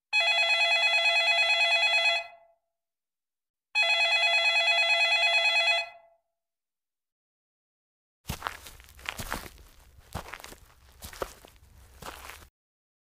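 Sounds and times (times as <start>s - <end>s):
telephone ringing with warbling trill: 3.8s - 6.1s.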